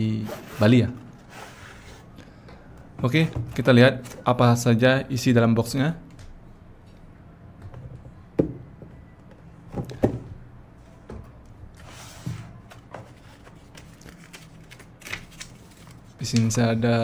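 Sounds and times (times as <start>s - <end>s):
paper handling: 11.8s - 16.6s.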